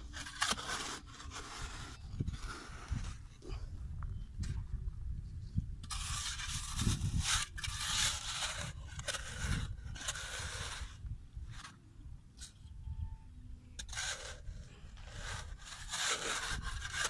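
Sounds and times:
shovel scraping into clay soil: 0.0 - 3.6, 5.8 - 11.8, 13.7 - 17.0.

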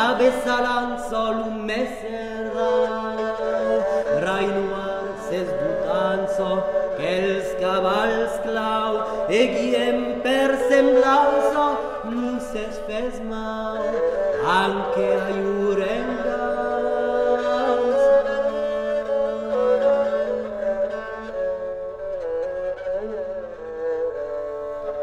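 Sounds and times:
man singing a melody: 0.0 - 18.3.

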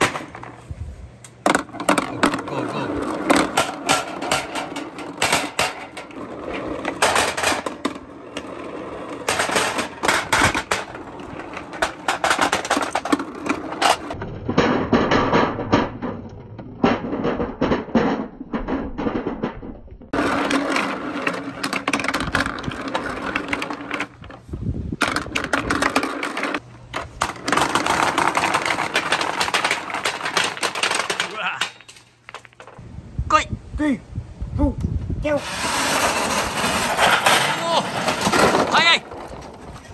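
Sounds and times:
toy balls clattering on metal: 25.0 - 32.8.

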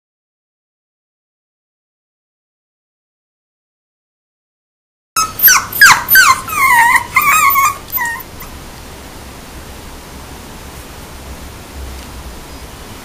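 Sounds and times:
puppy yelping and whining: 5.2 - 8.6
steady hiss: 8.4 - 13.0.

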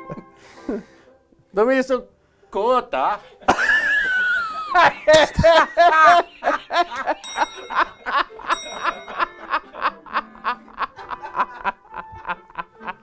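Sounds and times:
men laughing hard: 3.4 - 13.0
short ringing tones: 7.2 - 9.3.

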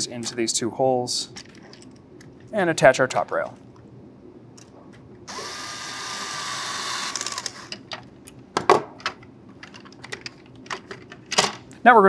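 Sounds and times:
electric screwdriver spinning: 5.3 - 7.7
plastic parts clicking and tapping: 7.7 - 11.6.

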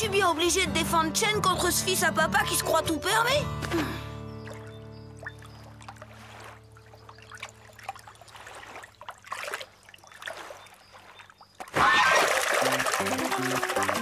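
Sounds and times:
pond water trickling and lapping: 3.6 - 14.0.

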